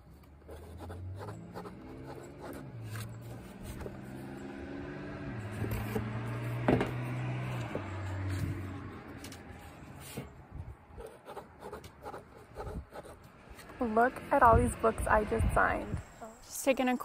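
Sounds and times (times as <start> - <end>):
pen scratching on paper: 0.4 - 4.0, 11.0 - 13.2.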